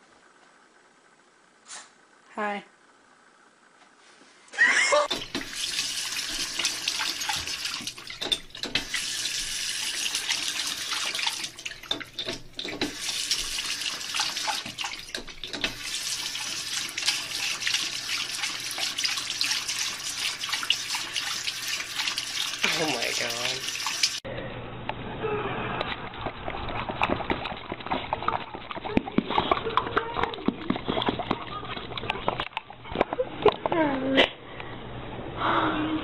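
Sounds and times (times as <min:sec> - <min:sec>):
tap water splashing into basin: 0:05.1 - 0:24.2.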